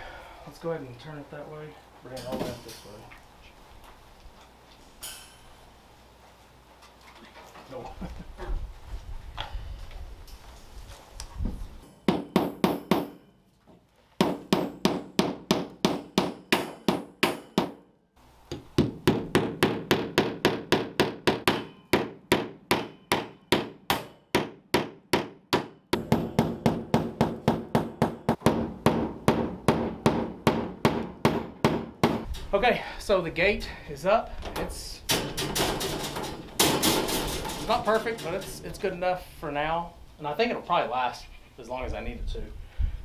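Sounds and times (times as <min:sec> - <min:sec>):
hammer striking staples: 0:12.0 - 0:13.2, 0:14.2 - 0:17.8, 0:18.5 - 0:32.3, 0:35.1 - 0:38.5.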